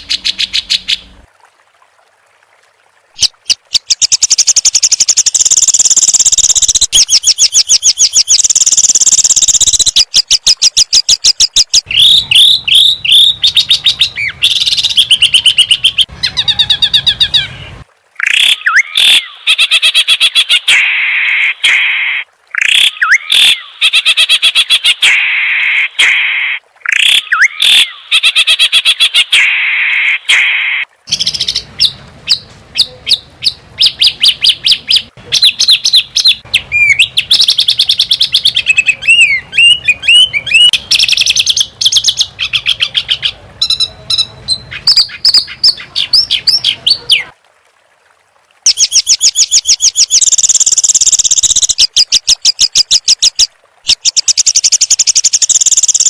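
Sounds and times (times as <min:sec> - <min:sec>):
songbird rapid repeated notes: 0:03.2 - 0:16.1, 0:48.7 - 0:56.0.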